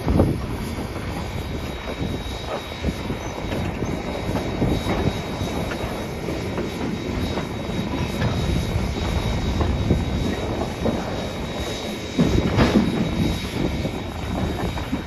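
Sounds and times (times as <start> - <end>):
faint high whine: 0.0 - 15.0
train rumble: 0.0 - 15.0
wheels clattering on rails: 0.0 - 15.0.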